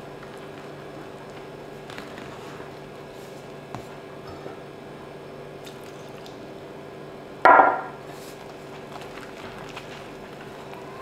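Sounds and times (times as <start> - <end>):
glass kitchenware knock: 7.5 - 7.9.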